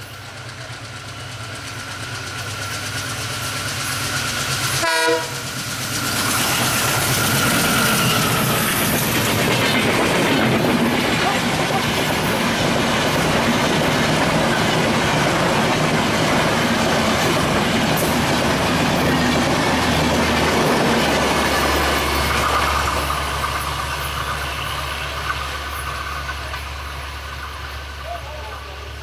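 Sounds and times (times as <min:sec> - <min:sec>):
train wheels on track: 0:00.0 - 0:29.0.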